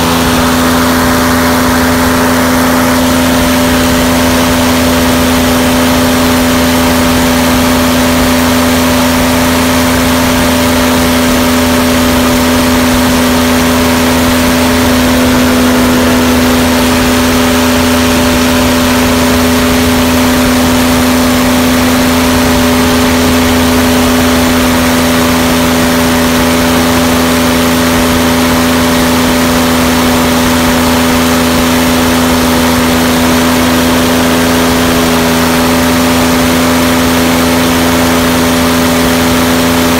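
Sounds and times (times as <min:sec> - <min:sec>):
aircraft engine droning: 0:00.0 - 0:39.9.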